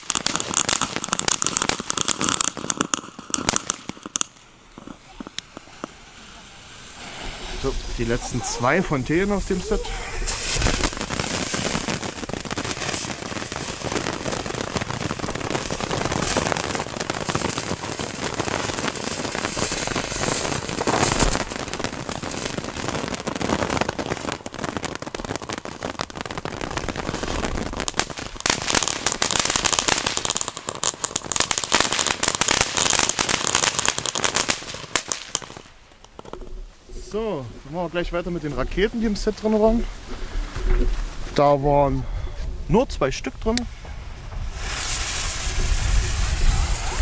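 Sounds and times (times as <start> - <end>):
fireworks crackling: 0.0 - 47.0
fireworks fountain hissing: 0.0 - 47.0.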